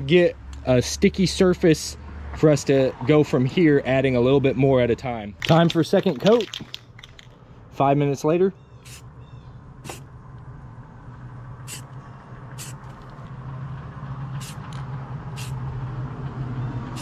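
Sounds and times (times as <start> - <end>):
vehicle engine hum: 0.0 - 17.0
spray paint can hissing: 8.8 - 9.0, 9.8 - 10.0, 11.7 - 11.9, 12.6 - 13.2, 14.4 - 15.6.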